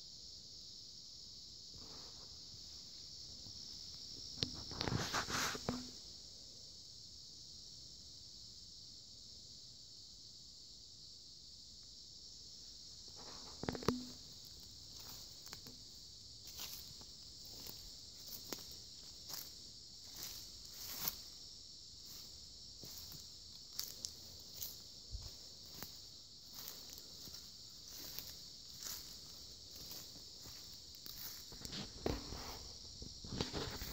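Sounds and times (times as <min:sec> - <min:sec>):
insect chorus: 0:00.0 - 0:33.9
footsteps walking: 0:13.2 - 0:15.8, 0:16.4 - 0:21.3, 0:22.0 - 0:32.7.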